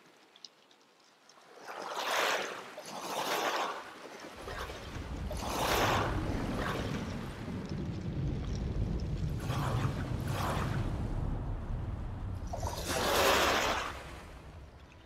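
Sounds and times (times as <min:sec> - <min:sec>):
waves washing on shingle: 0:00.0 - 0:15.0
low rumble: 0:04.8 - 0:14.8.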